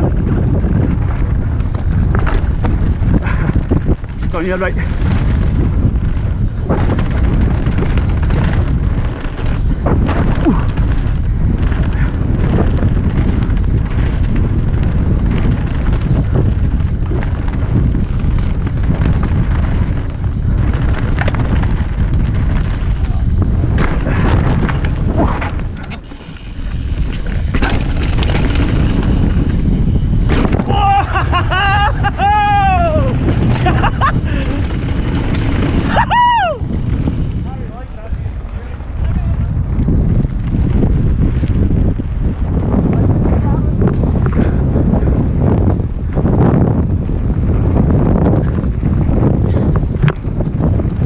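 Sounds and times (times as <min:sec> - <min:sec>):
bike tyres rattling on stony trail: 0:00.0 - 0:51.0
wind buffeting microphone: 0:00.0 - 0:51.0
bike knocking on stones: 0:01.2 - 0:31.0.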